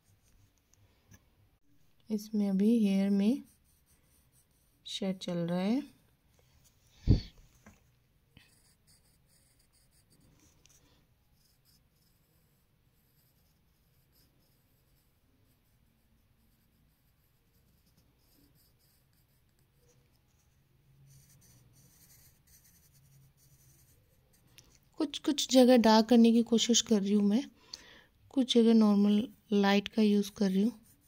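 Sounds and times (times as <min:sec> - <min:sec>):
pencil scratching on paper: 0:02.4 - 0:05.9, 0:08.4 - 0:27.1, 0:28.5 - 0:31.0.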